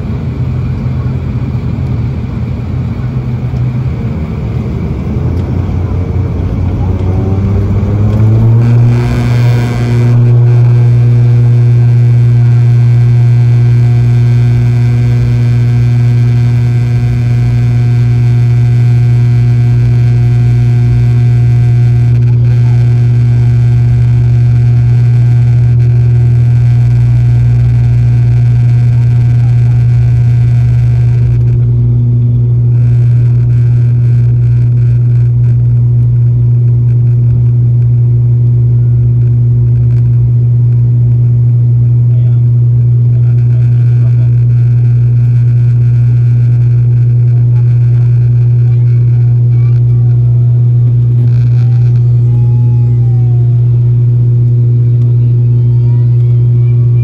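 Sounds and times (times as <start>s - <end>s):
turboprop engine drone: 0.0s - 57.0s
rushing noise: 7.2s - 31.6s.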